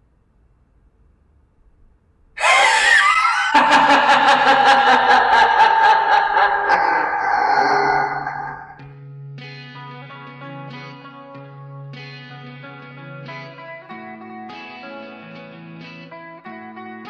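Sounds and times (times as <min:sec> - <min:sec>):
maniacal laugh: 0:02.4 - 0:08.8.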